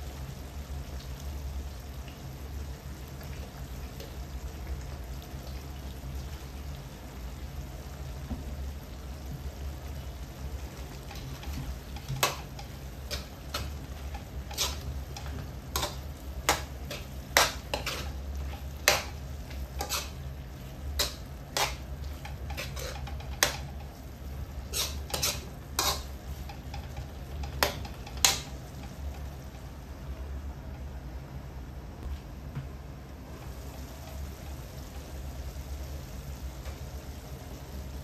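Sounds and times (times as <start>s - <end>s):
metal spatula scraping wok: 11.0s - 24.0s, 24.6s - 29.0s.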